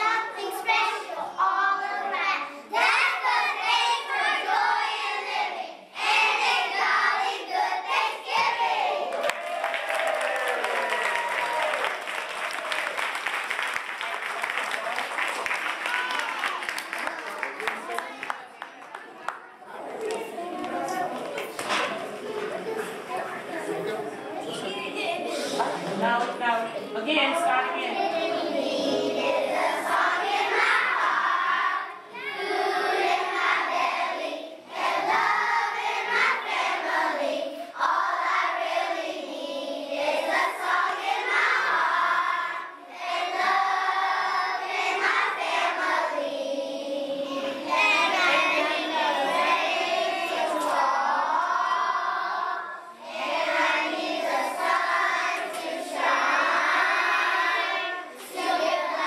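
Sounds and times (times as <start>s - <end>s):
young children singing: 0.0s - 9.2s, 27.6s - 59.0s.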